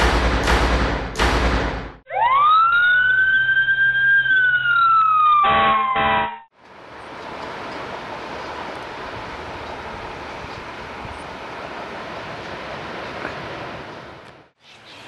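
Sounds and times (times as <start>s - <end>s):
heavy drum hits: 0.0s - 2.0s
fire engine siren wailing: 2.1s - 6.5s
air horn blasts: 5.5s - 6.5s
low engine hum: 6.6s - 14.5s.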